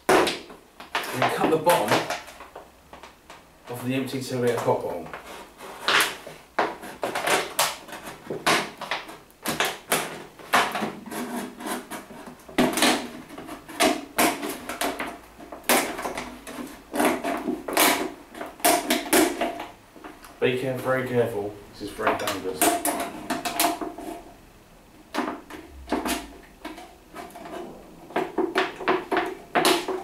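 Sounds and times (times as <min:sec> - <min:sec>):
plastic bottle crackling: 0:25.1 - 0:30.0.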